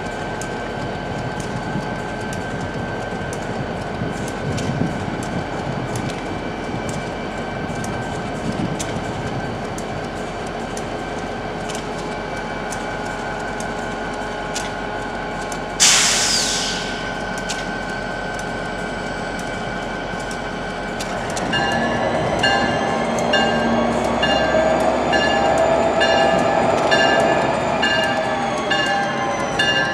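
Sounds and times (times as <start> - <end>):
loud hiss of air: 15.8 - 17.2.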